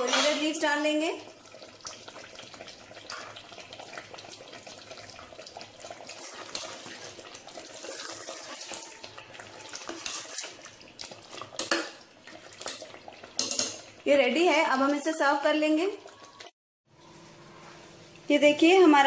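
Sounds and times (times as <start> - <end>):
gravy bubbling in a pot: 0.5 - 16.6
ladle stirring: 1.4 - 14.0.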